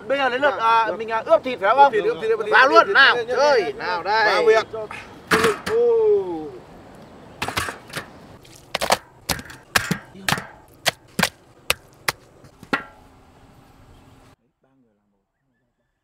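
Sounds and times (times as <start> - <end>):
knife chopping on wooden board: 8.8 - 12.8.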